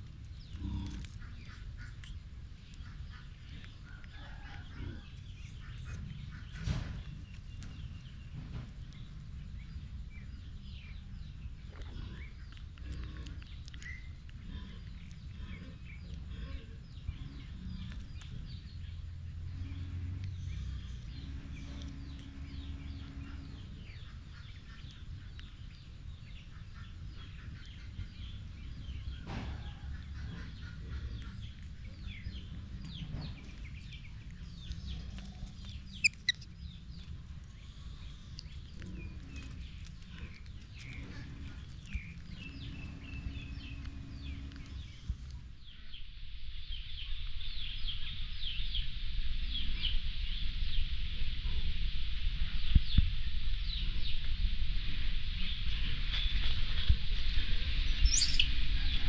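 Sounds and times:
steady low rumble: 0.0 - 59.0
high bird chirps: 33.5 - 36.7, 58.0 - 58.8
sharp high-pitched bird call: 58.1 - 58.6.

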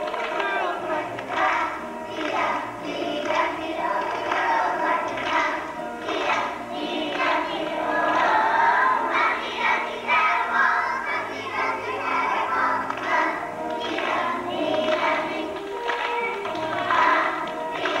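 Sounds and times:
children singing in chorus: 0.0 - 18.0
musical accompaniment with bass: 0.0 - 18.0.

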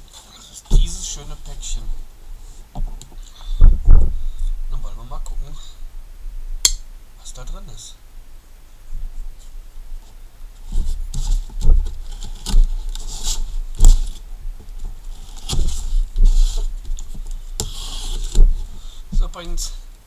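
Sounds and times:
tape tearing and rustling: 10.6 - 19.3
knife slitting tape and cardboard: 10.7 - 14.2.

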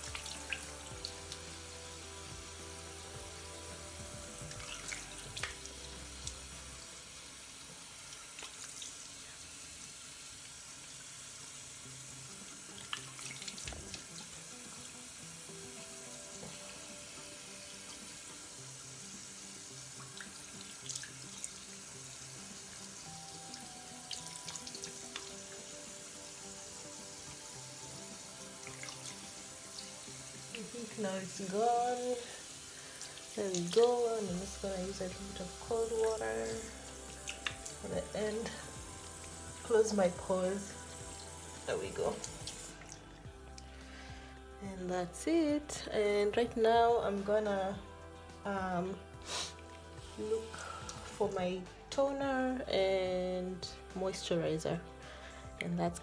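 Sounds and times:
tap running into sink: 12.8 - 14.4
water splashing on face: 32.9 - 40.4.

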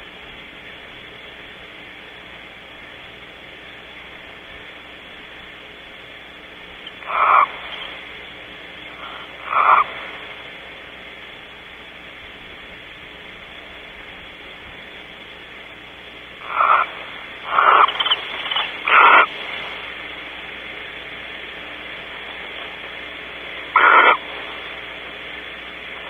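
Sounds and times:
steady background hiss: 0.0 - 26.0
barn owl screeches: 7.0 - 7.6, 9.0 - 9.9, 16.4 - 19.3, 23.8 - 24.2.

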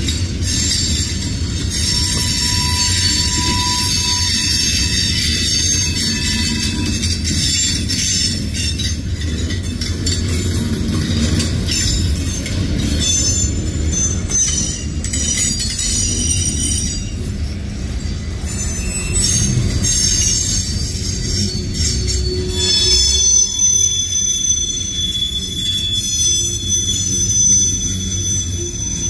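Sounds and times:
train wheels rumbling on rail: 0.0 - 29.0
high-pitched wheel squeal: 0.4 - 8.9, 18.4 - 29.0.

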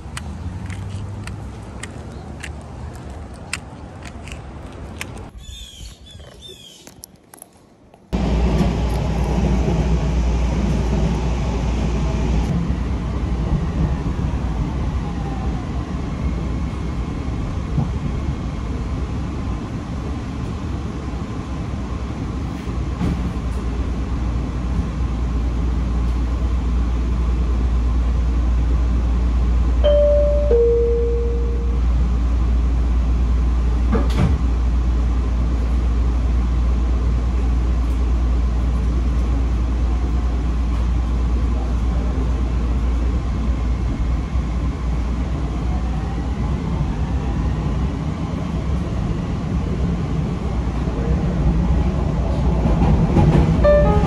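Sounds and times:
street sound: 0.0 - 54.0
transit vehicle rumble: 0.0 - 54.0
two-note falling chime: 29.8 - 31.9, 53.6 - 54.0.

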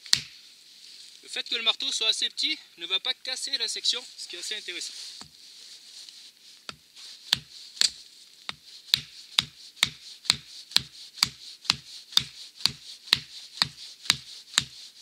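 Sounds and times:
axe poll knocking wooden stake: 0.0 - 0.4, 6.7 - 14.7.

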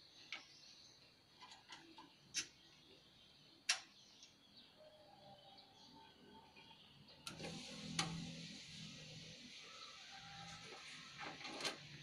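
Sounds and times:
faint metal clicks and taps: 3.6 - 4.4.

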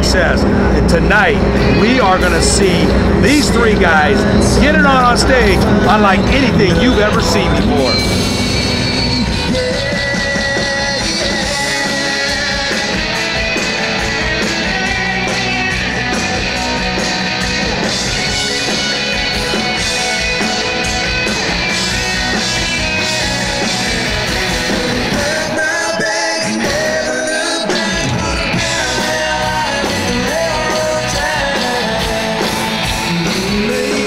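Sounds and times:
country-rock song: 0.0 - 34.0
person singing lead vocal: 3.9 - 8.2, 9.0 - 13.8, 23.2 - 34.0.

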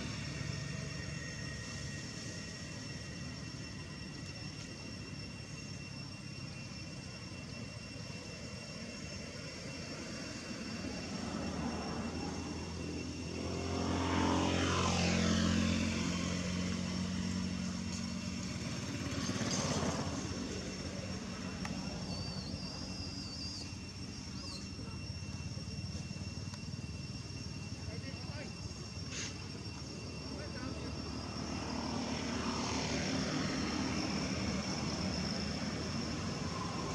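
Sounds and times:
high-pitched background whine: 0.0 - 36.9
motor vehicle passing by: 11.2 - 21.4.

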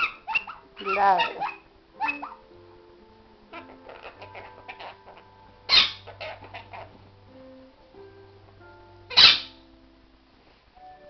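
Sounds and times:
sharp animal cries: 0.0 - 2.5, 3.5 - 7.0, 9.1 - 9.6
background music with held notes: 0.0 - 11.0.

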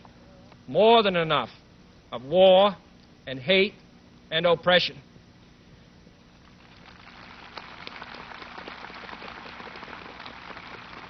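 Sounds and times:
audience applauding: 6.6 - 11.0.

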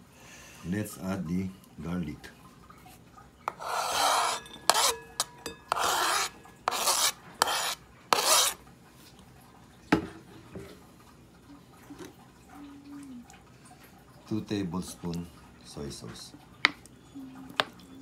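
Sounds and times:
garlic scraped off cutting board: 3.5 - 8.6.

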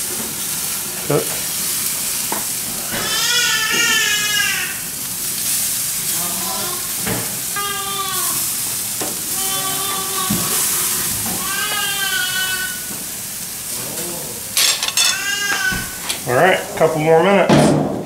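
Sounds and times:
fish sizzling on a grill: 0.0 - 17.4.

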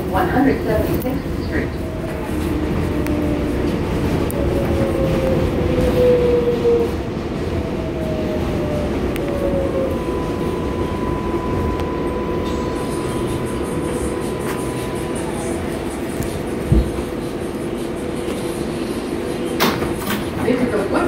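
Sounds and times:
subway car rumbling on rails: 0.0 - 21.0
steady high tone: 8.7 - 19.3.

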